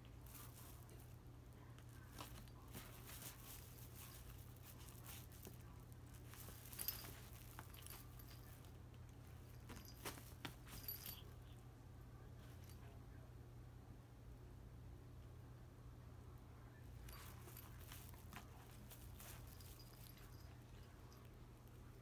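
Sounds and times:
kitten rustling in fabric bag: 0:00.0 - 0:01.2, 0:01.8 - 0:08.8, 0:09.4 - 0:11.2, 0:17.0 - 0:21.2
small crinkles: 0:00.0 - 0:11.6, 0:17.0 - 0:22.0
low steady hum: 0:00.0 - 0:22.0.

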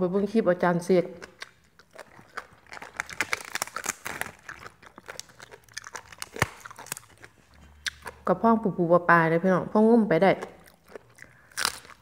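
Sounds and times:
crisp food being chewed: 0:01.1 - 0:08.3, 0:10.4 - 0:12.0
cabbage leaf tearing: 0:02.3 - 0:07.3.

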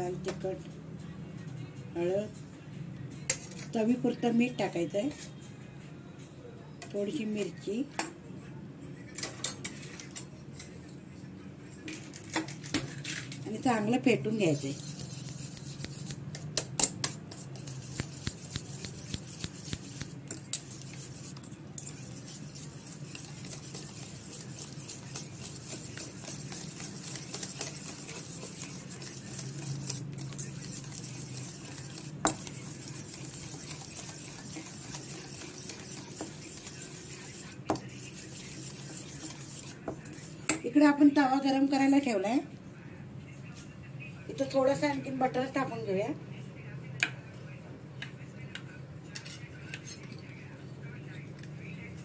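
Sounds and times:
whisk beating eggs in metal bowl: 0:14.3 - 0:40.6.

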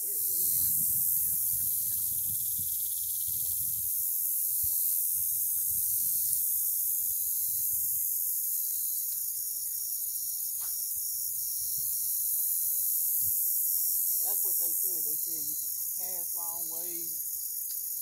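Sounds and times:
wind rumble on microphone: 0:00.0 - 0:08.1
insect chorus: 0:00.0 - 0:18.0.

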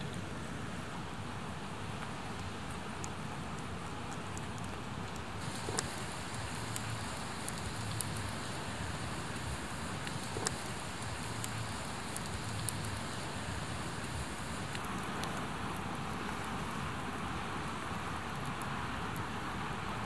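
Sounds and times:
campfire hissing: 0:02.8 - 0:20.0
logs crackling: 0:04.4 - 0:16.8.

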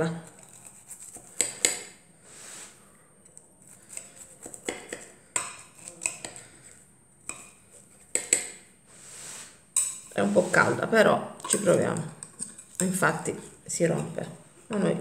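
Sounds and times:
knife cutting crust: 0:00.3 - 0:02.0, 0:03.3 - 0:06.7.

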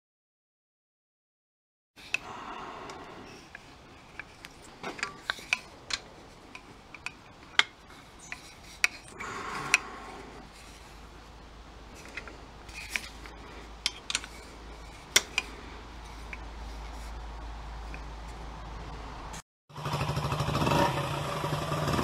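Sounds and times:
socket wrench clicking: 0:02.9 - 0:09.9, 0:12.0 - 0:15.5
metal scraping on metal: 0:02.9 - 0:18.4.

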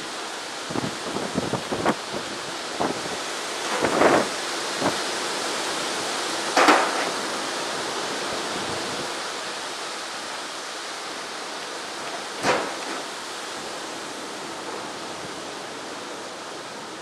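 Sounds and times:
heavy rain hissing: 0:00.0 - 0:17.0.

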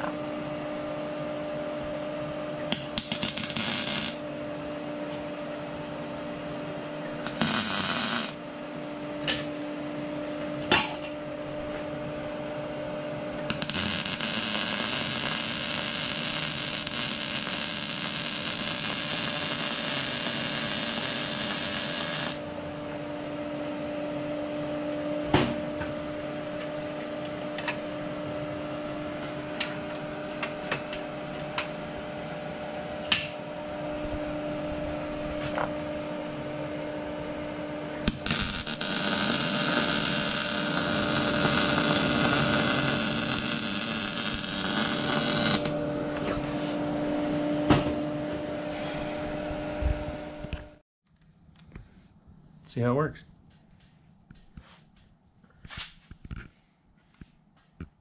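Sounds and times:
steady hum: 0:00.0 - 0:50.8
arc welder welding: 0:02.6 - 0:05.2, 0:07.0 - 0:09.7, 0:13.3 - 0:23.4, 0:37.9 - 0:46.0.

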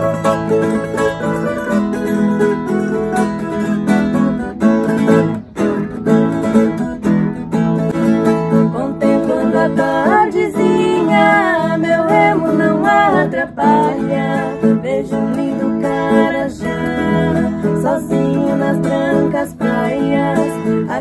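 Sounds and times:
strummed stringed instruments: 0:00.0 - 0:21.0
women singing: 0:08.5 - 0:21.0.

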